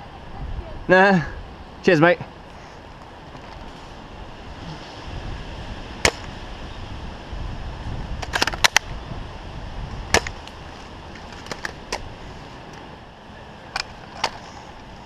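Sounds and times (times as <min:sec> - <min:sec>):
rustling and rifle handling: 0:02.8 - 0:04.0, 0:08.2 - 0:08.9, 0:10.1 - 0:12.9, 0:13.7 - 0:15.0
airsoft gun cracks: 0:06.0 - 0:06.4, 0:08.2 - 0:08.9, 0:10.1 - 0:10.6.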